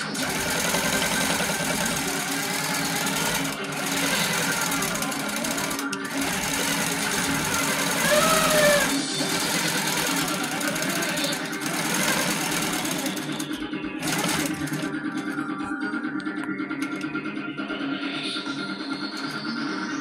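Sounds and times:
quilting machine stitching: 0.0s - 15.3s
background music: 0.0s - 20.0s.

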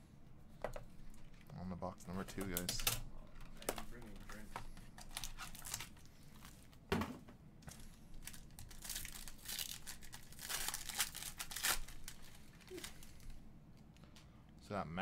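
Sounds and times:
foil wrapper tearing and crinkling: 5.1s - 6.1s, 8.2s - 13.3s.

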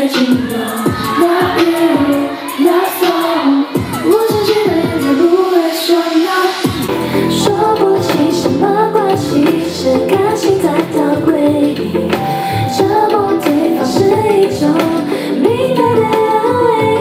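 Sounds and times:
backing music: 0.0s - 17.0s
woman singing into microphone: 0.0s - 17.0s.

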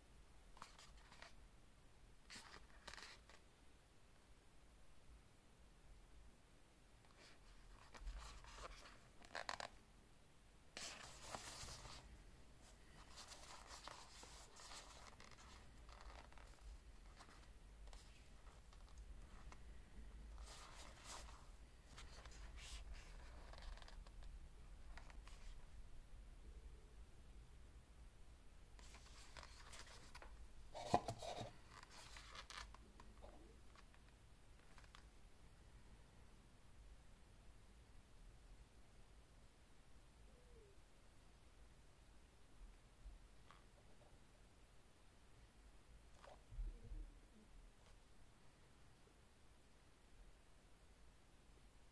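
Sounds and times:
fabric scratching and rustling: 7.1s - 9.8s, 10.8s - 19.8s, 20.4s - 24.2s, 28.8s - 32.8s.

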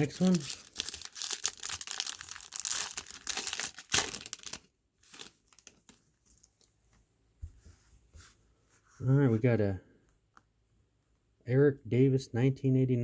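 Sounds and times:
wrapper tearing and crinkling: 0.0s - 6.0s.

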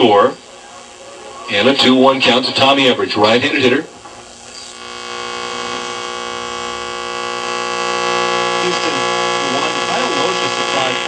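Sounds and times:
voice on radio: 0.0s - 3.9s, 8.3s - 11.0s
radio buzzing hum: 0.0s - 11.0s.

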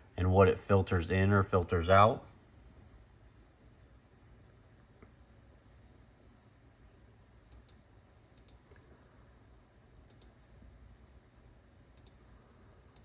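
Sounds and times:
computer mouse button clicks: 10.1s - 10.4s, 12.0s - 12.2s.

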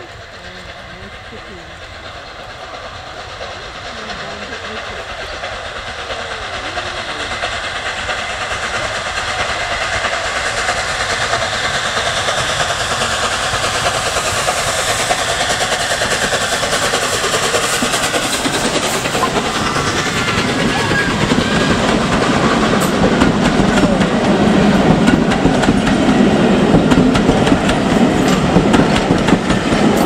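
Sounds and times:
steam locomotive exhaust: 0.0s - 30.0s
wheels clicking over rail joints: 12.0s - 30.0s.

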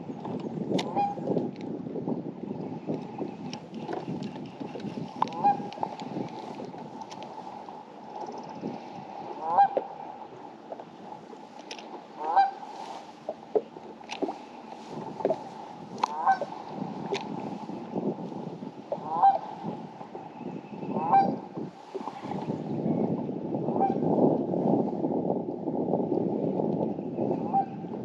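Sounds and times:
bird honking: 5.4s - 5.9s, 9.4s - 10.0s, 12.2s - 13.1s, 16.1s - 16.6s, 19.0s - 19.6s, 20.3s - 21.4s.

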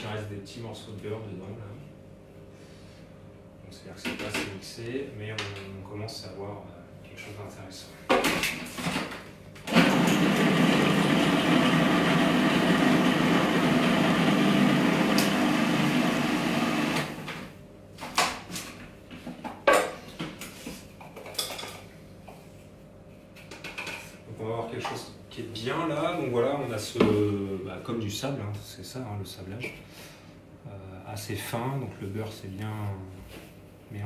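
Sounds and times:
food processor running: 9.6s - 17.5s.

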